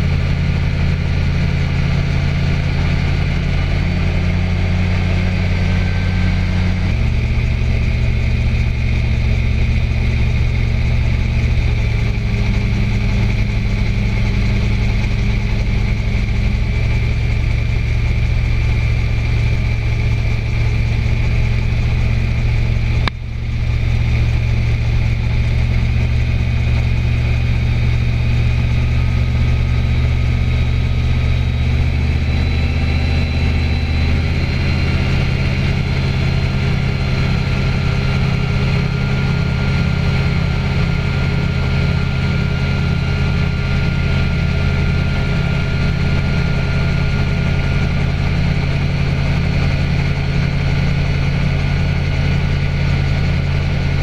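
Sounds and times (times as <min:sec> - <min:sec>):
small aircraft engine droning: 0:00.0 - 0:54.0.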